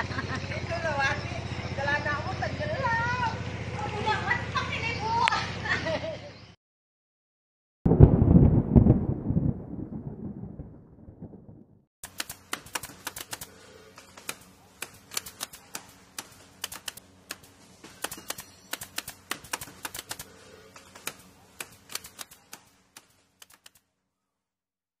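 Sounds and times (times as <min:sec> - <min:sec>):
typewriter key clicks: 0:12.0 - 0:17.4, 0:18.0 - 0:20.2, 0:20.8 - 0:23.8.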